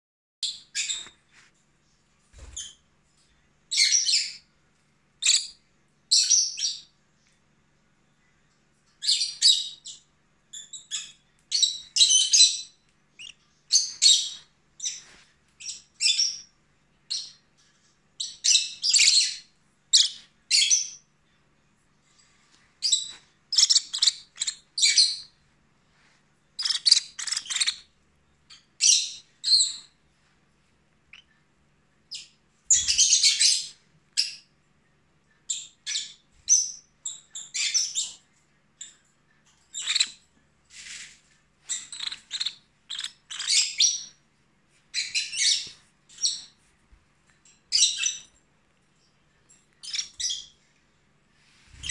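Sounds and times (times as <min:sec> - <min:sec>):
parrot chirping: 0:00.4 - 0:01.1, 0:03.7 - 0:04.5, 0:05.2 - 0:06.9, 0:09.0 - 0:15.0, 0:18.2 - 0:21.1, 0:22.8 - 0:25.4, 0:26.6 - 0:27.9, 0:28.5 - 0:30.0, 0:31.1 - 0:31.3, 0:32.1 - 0:34.5, 0:35.5 - 0:38.2, 0:39.7 - 0:40.2, 0:41.6 - 0:44.2, 0:44.9 - 0:46.6, 0:47.7 - 0:48.3, 0:49.8 - 0:50.6.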